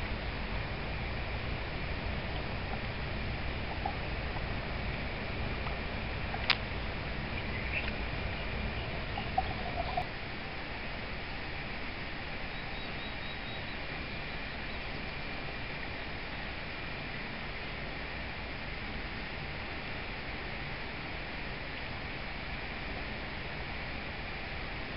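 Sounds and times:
outdoor background noise: 0.0s - 24.9s
faint bird chirps: 6.3s - 10.1s, 12.4s - 15.0s.

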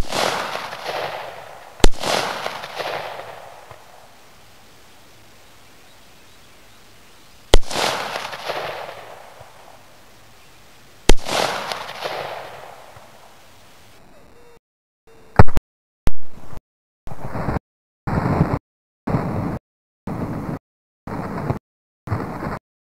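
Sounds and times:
gunshots with echo: 0.0s - 4.8s, 7.5s - 10.0s, 11.1s - 13.3s.

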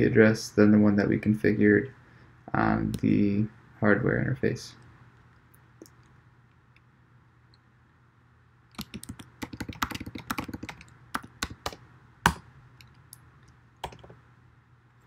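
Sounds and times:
computer keyboard typing: 8.7s - 12.4s, 13.8s - 14.2s.

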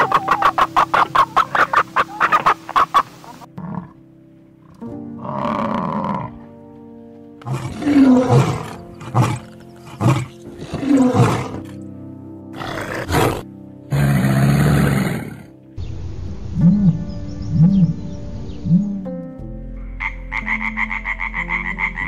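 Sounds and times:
background music: 0.0s - 22.0s
lion roaring: 3.6s - 4.0s, 5.2s - 6.4s, 7.4s - 11.8s, 12.6s - 15.6s.

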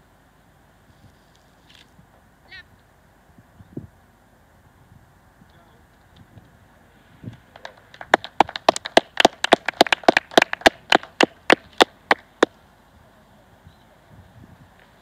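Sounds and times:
people clapping: 7.5s - 12.5s.

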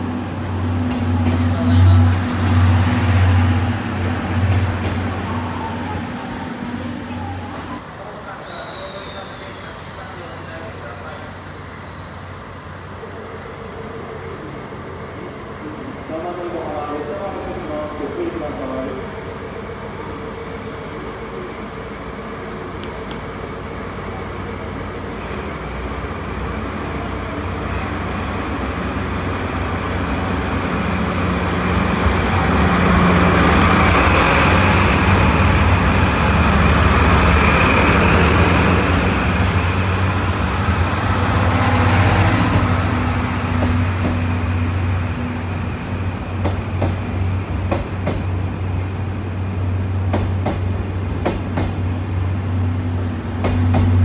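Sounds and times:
train wheels clicking over rail joints: 46.4s - 48.4s, 50.1s - 51.9s, 53.4s - 54.0s.

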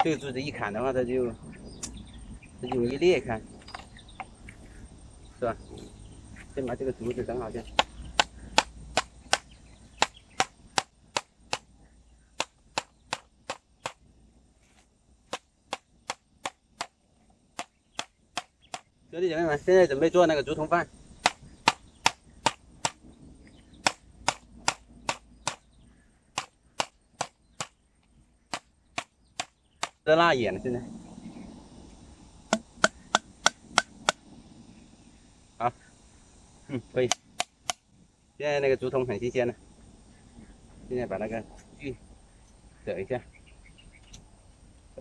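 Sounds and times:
knife chopping bamboo: 7.8s - 11.7s, 12.4s - 14.0s.

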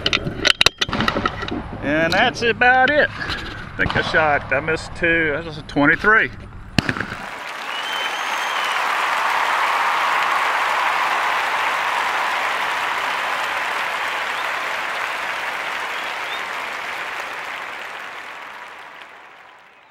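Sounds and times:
crowd applauding: 7.0s - 19.9s.

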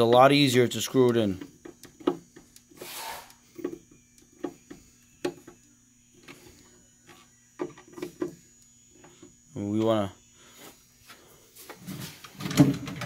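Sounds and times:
short hiss: 2.8s - 3.4s.

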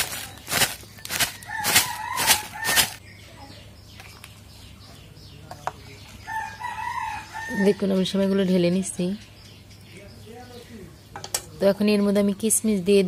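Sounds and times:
plastic packet crinkling: 0.0s - 3.0s
rooster crowing: 1.2s - 3.0s, 6.3s - 7.8s.

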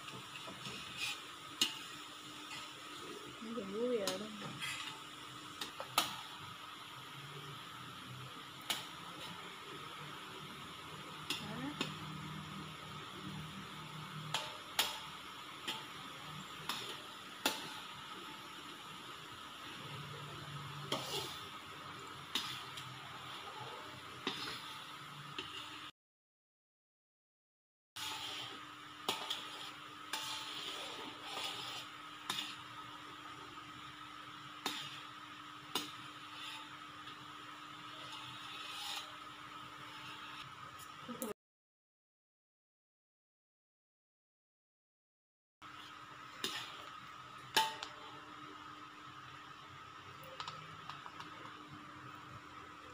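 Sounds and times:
spatula scraping a pot: 0.0s - 3.4s, 4.1s - 5.1s, 20.8s - 21.5s, 22.3s - 25.8s, 28.0s - 32.7s, 34.6s - 35.1s, 35.7s - 36.9s, 37.8s - 40.4s
syrup sizzling and bubbling: 0.0s - 25.9s, 28.0s - 41.2s, 45.6s - 52.9s.

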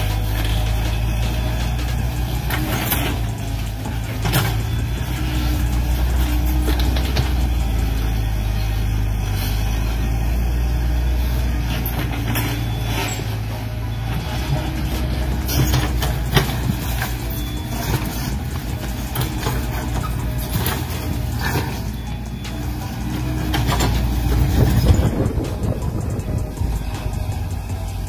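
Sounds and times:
model excavator motor hum: 0.0s - 28.0s.

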